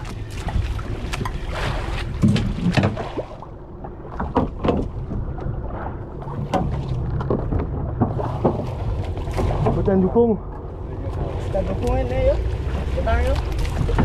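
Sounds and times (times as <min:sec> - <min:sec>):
boat engine rumbling: 0:00.0 - 0:14.0
water: 0:00.0 - 0:14.0
wind: 0:00.0 - 0:14.0
sharp knocks and clicks: 0:04.2 - 0:05.5.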